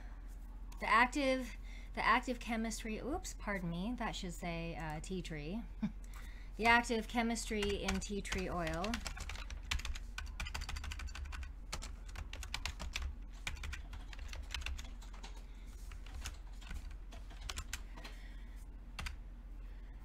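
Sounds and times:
computer keyboard typing: 7.5 - 18.1, 19.0 - 19.2.

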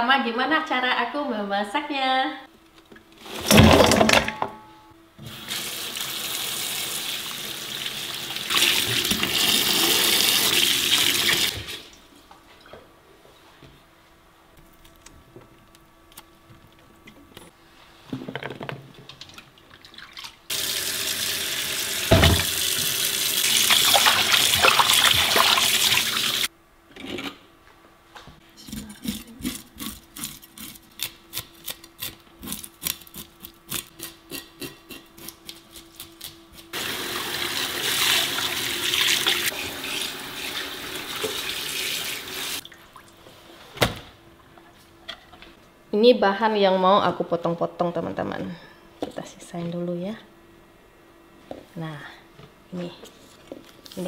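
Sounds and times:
knife scraping fish scales: 28.8 - 36.2.

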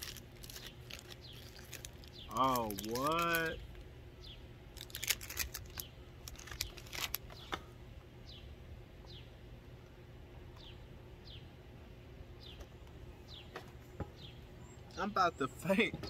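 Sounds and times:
biscuit stick crunching: 0.0 - 3.6, 4.8 - 7.3
bird chirping: 0.4 - 3.6, 4.2 - 4.5, 5.6 - 9.4, 10.5 - 11.6, 12.4 - 16.0.

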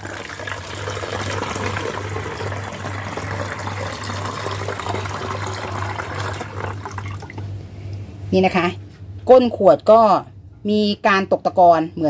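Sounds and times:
liquid pouring into plastic bottle: 0.0 - 7.4.

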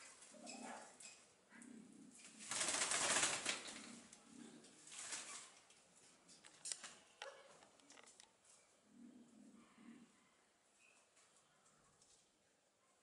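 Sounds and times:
bird wings flapping in branches: 2.2 - 4.0, 4.9 - 5.6.

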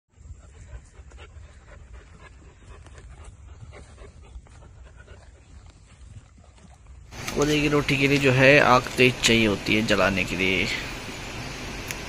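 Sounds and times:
dog panting: 0.2 - 6.6.

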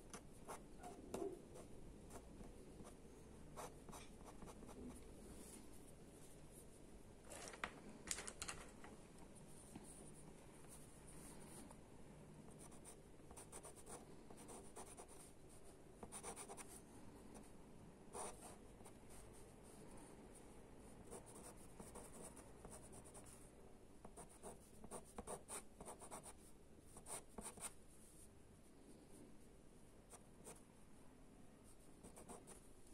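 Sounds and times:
pencil scratching on paper: 0.0 - 5.8, 12.5 - 16.8, 18.1 - 19.8, 21.0 - 28.3, 31.6 - 32.7.

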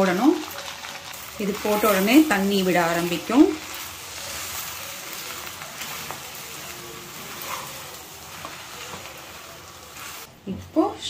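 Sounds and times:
wheat and sugar sizzling in pan: 0.0 - 11.0.

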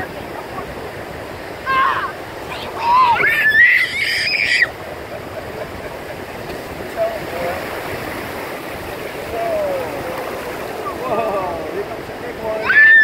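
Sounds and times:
surf washing over sand: 0.0 - 13.0
child squealing: 1.6 - 4.8, 12.6 - 13.0.

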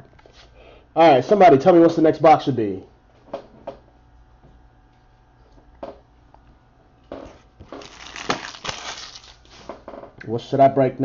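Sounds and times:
faint room hum: 0.0 - 11.0
packaging rustling: 7.4 - 9.7.

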